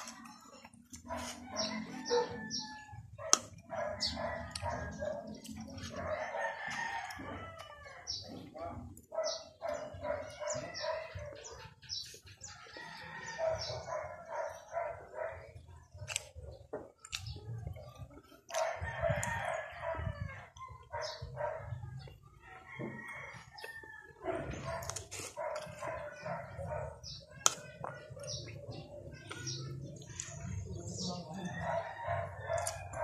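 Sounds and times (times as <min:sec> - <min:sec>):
eating noises: 0:00.0 - 0:22.4, 0:23.1 - 0:33.0
chickens clucking: 0:00.0 - 0:33.0
rooster crowing: 0:01.4 - 0:03.1, 0:05.9 - 0:08.2, 0:12.7 - 0:13.8.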